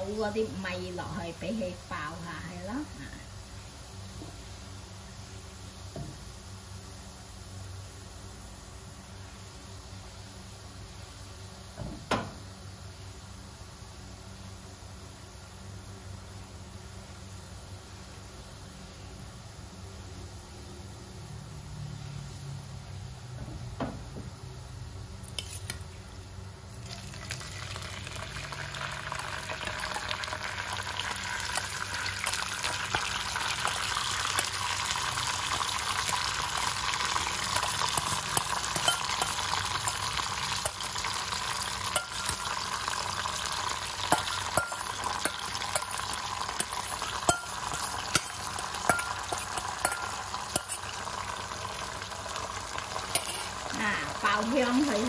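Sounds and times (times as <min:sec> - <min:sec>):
oil sizzling in a wok: 0:00.0 - 0:55.0
utensils knocking against pan: 0:44.2 - 0:45.9, 0:46.9 - 0:50.8.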